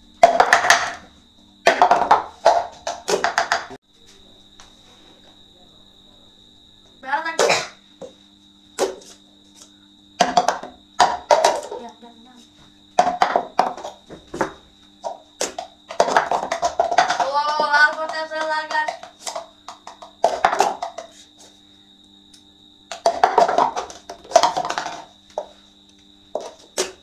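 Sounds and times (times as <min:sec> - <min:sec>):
plastic cups clacking: 0:00.2 - 0:03.8, 0:08.8 - 0:12.0, 0:12.9 - 0:21.5, 0:22.9 - 0:25.6, 0:26.3 - 0:27.0
person calling out: 0:17.2 - 0:19.0.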